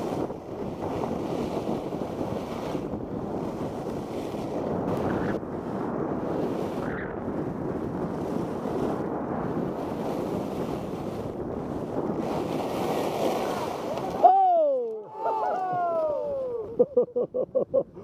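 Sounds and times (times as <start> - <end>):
skis sliding over snow: 0.0 - 14.4
wind buffeting microphone: 0.0 - 17.0.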